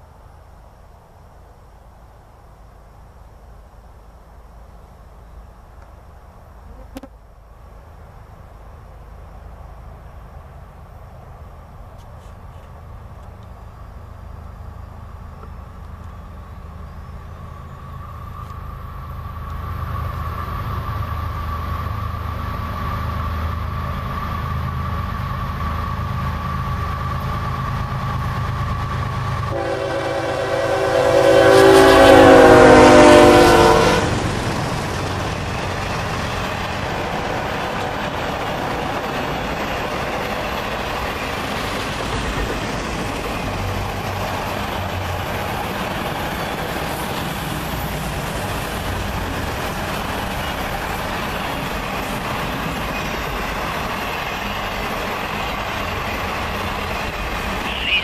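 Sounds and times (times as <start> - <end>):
train wheels on rails: 7.6 - 58.0
train air horn blast: 29.5 - 34.2.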